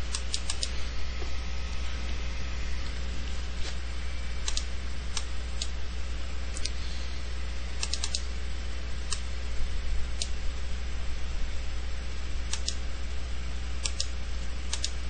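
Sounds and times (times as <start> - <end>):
steady low hum: 0.0 - 15.0
computer mouse clicks: 0.1 - 0.7, 4.4 - 5.7, 7.8 - 8.2, 12.5 - 12.8, 13.8 - 14.1, 14.7 - 15.0.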